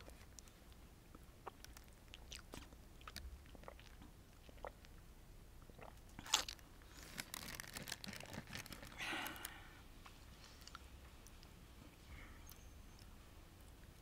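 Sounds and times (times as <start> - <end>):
close-miked chewing: 0.0 - 5.0.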